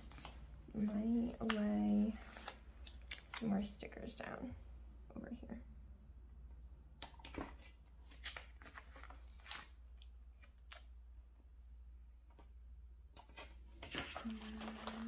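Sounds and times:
paper stickers rustling: 13.2s - 15.0s.

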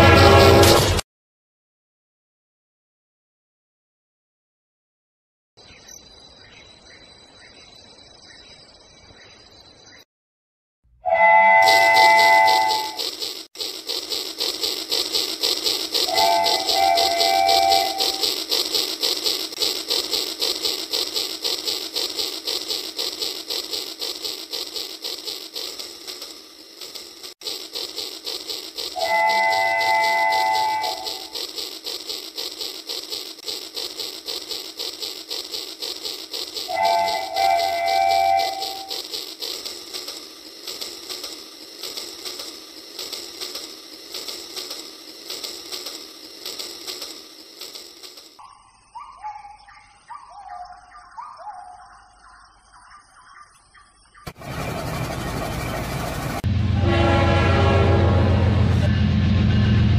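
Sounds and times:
toy train clicking rattle: 11.6s - 48.4s.

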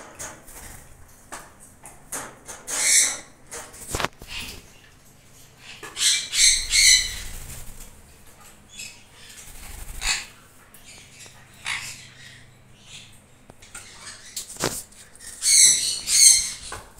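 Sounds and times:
parrots squawking: 2.7s - 3.4s, 5.6s - 7.7s, 8.7s - 14.5s, 15.2s - 16.9s
wings flapping: 6.8s - 8.0s, 9.3s - 10.4s.

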